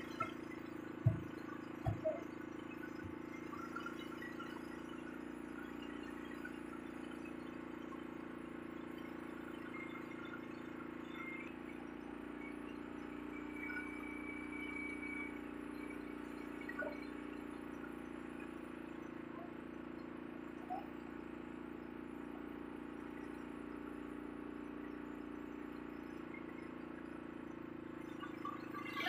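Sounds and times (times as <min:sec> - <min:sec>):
short blips: 0:00.0 - 0:03.2
boat engine hum: 0:00.0 - 0:07.1.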